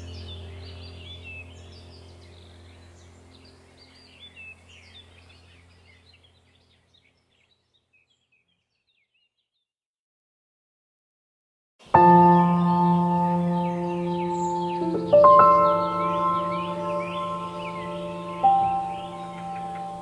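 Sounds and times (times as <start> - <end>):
low steady hum: 0.0 - 7.2, 11.9 - 20.0
birds chirping: 0.0 - 9.7, 11.8 - 20.0.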